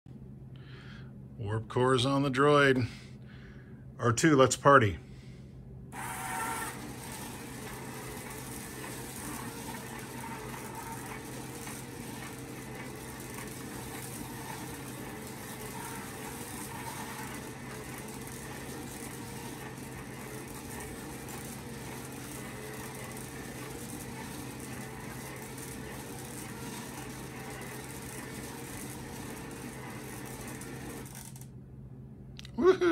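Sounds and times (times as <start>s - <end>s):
electric motors humming: 5.9s - 31.6s.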